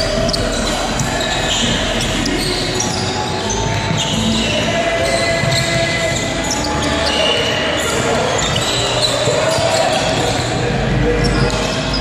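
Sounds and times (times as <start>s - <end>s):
din of a game in a gymnasium: 0.0s - 12.0s.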